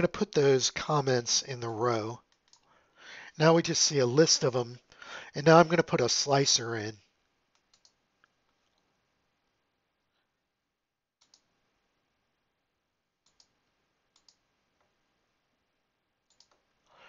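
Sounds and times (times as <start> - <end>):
computer mouse clicks: 2.3 - 2.7, 7.5 - 8.0, 11.2 - 11.5, 13.2 - 14.9, 16.3 - 16.7.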